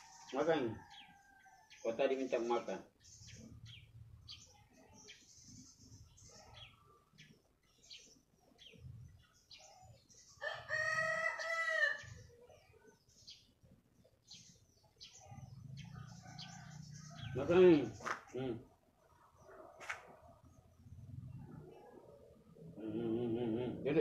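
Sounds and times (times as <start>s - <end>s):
small birds chirping: 0.0s - 24.0s
rooster crowing: 10.4s - 12.1s.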